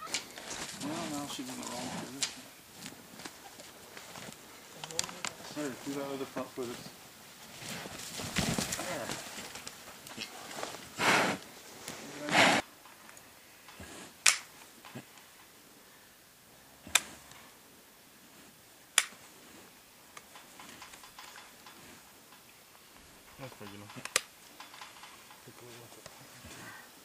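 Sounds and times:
hoof nippers snapping: 0:01.6 - 0:05.4, 0:13.1 - 0:15.3, 0:16.9 - 0:17.4, 0:19.0 - 0:19.3, 0:20.1 - 0:25.3.

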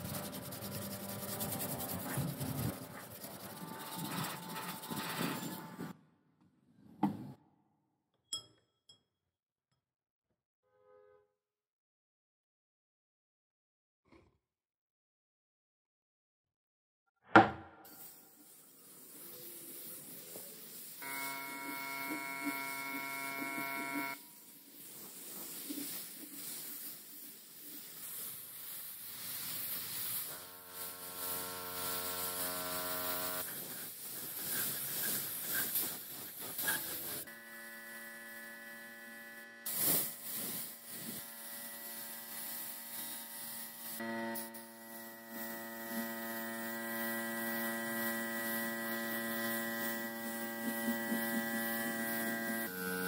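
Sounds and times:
paint sprayer motor humming: 0:00.0 - 0:05.9, 0:18.0 - 0:53.0
spray hissing: 0:00.0 - 0:05.9, 0:17.9 - 0:37.4, 0:39.6 - 0:53.0
brief knock: 0:17.3 - 0:17.8.

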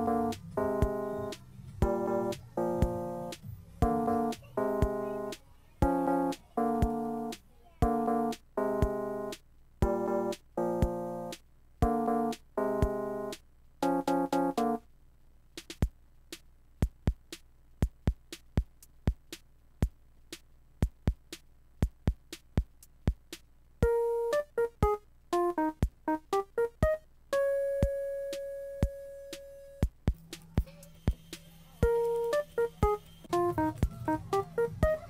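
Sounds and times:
drum machine beat: 0:00.0 - 0:14.8, 0:15.6 - 0:35.0
keyboard chords: 0:00.0 - 0:14.9, 0:23.8 - 0:35.0.

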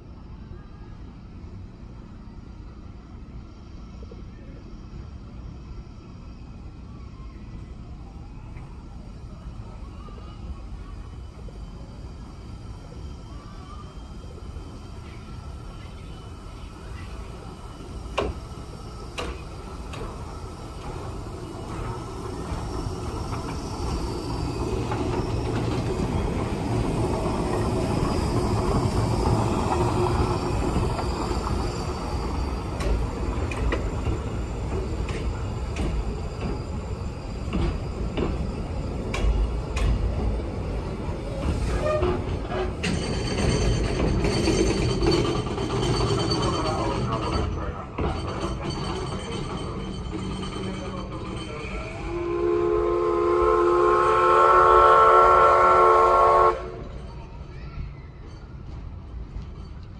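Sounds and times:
train rumbling past: 0:00.0 - 0:59.9
high wheel squeal: 0:09.9 - 0:39.7, 0:41.0 - 0:52.6
sharp clacks of train wheels: 0:18.1 - 0:52.2, 0:58.2 - 0:59.9.

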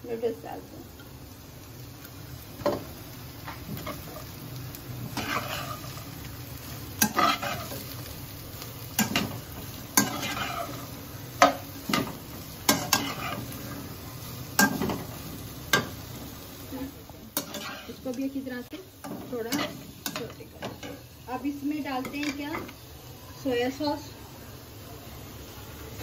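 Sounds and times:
vegetables sizzling in a wok: 0:00.0 - 0:26.0
metal spatula scraping and striking wok: 0:05.1 - 0:06.0, 0:07.0 - 0:08.0, 0:09.0 - 0:13.6, 0:17.4 - 0:18.2.

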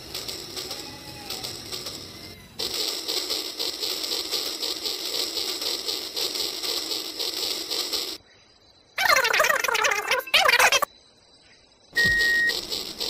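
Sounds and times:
toy trains whirring on track: 0:00.0 - 0:08.2, 0:12.0 - 0:13.0.

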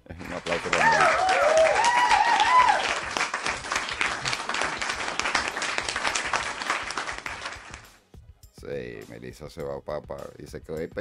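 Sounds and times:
crowd applause: 0:00.2 - 0:07.9
whooping cheers: 0:00.6 - 0:03.2.

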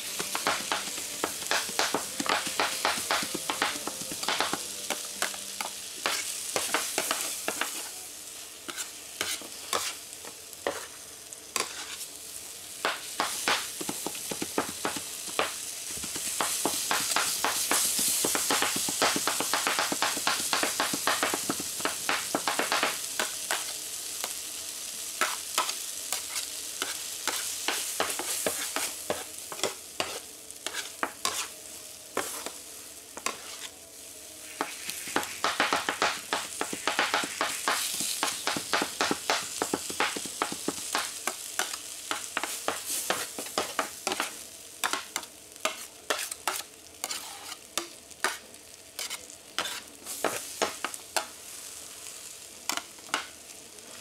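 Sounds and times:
rice sizzling on a griddle: 0:00.0 - 0:54.0
metal spatulas chopping and scraping: 0:08.7 - 0:10.0, 0:11.6 - 0:12.0, 0:25.2 - 0:31.5, 0:33.2 - 0:33.7, 0:34.6 - 0:47.6, 0:49.0 - 0:50.9.

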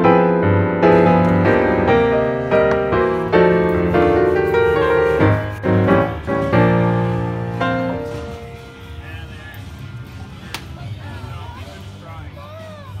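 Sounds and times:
gentle piano melody: 0:00.0 - 0:08.9.

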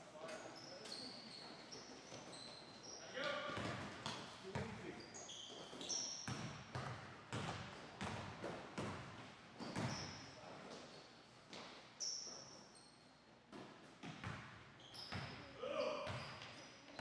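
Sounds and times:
sneaker squeaks: 0:00.2 - 0:08.2, 0:09.6 - 0:17.0
basketball bouncing on wooden floor: 0:06.3 - 0:10.0.

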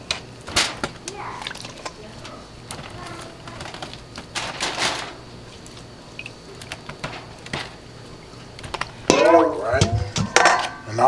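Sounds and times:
corn cobs clattering into foil pan: 0:00.0 - 0:05.4, 0:06.6 - 0:07.8, 0:08.6 - 0:10.9
noisy rustle: 0:00.0 - 0:08.6.

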